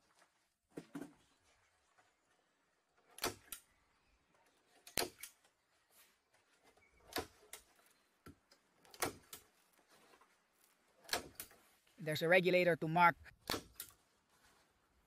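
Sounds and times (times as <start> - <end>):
sharp clicks and knocks: 7.0 - 9.5, 11.0 - 11.6.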